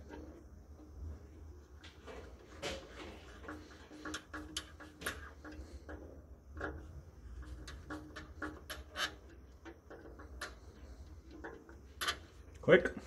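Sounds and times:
low steady hum: 0.0 - 13.0
screwdriver clicks and scrapes: 7.6 - 9.2.

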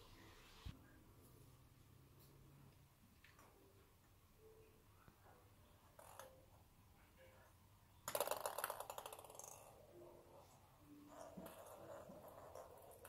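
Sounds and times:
ping pong ball clattering on floor: 6.0 - 6.4, 8.0 - 9.9, 11.0 - 13.0.

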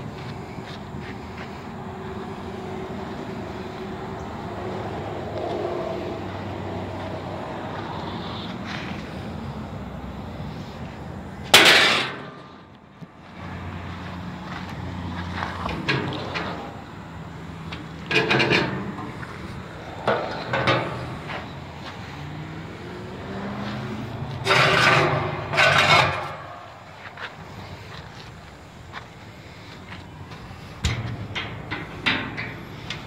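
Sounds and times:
loud metal clank: 11.5 - 12.6, 18.0 - 21.6, 24.4 - 27.0, 30.8 - 33.0
sharp metallic knocks: 11.5 - 12.6, 17.7 - 21.6, 24.4 - 27.1, 30.8 - 33.0.

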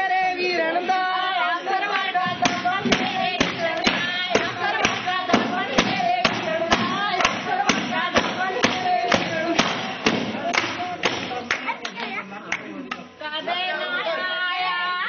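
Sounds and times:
women singing together: 0.0 - 15.0
basket beaten as drum: 2.2 - 11.5.

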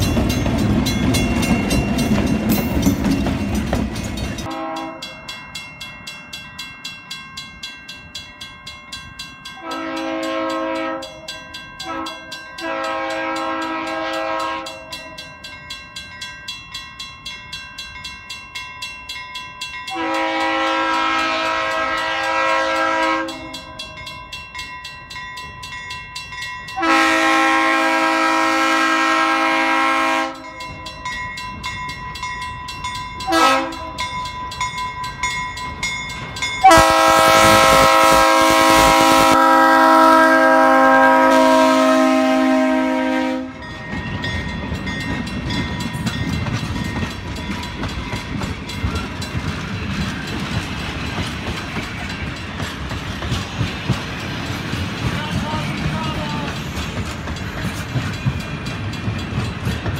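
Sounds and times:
bell ringing rhythmically: 0.0 - 20.2, 23.2 - 26.9, 30.4 - 36.8, 43.6 - 54.5, 55.1 - 59.9
locomotive air horn blasts: 4.5 - 5.1, 9.6 - 11.2, 11.8 - 14.9, 19.9 - 23.6, 26.8 - 30.5, 33.3 - 34.0, 36.6 - 43.6.

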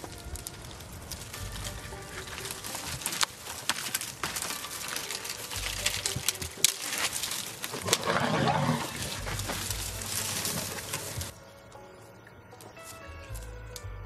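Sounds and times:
branches cracking and snapping: 0.0 - 14.0
low elephant vocalisation: 7.7 - 11.3.

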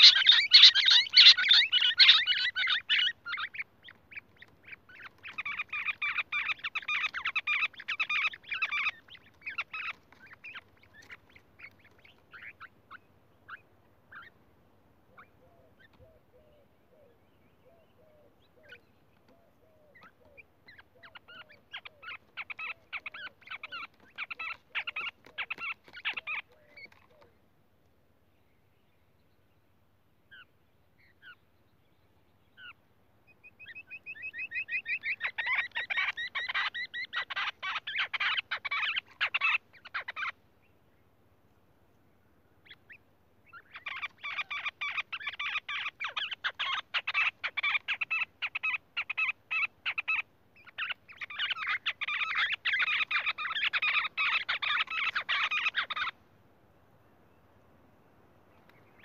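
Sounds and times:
quail calling: 0.0 - 14.4, 15.1 - 27.4, 32.5 - 40.4, 42.6 - 56.2.

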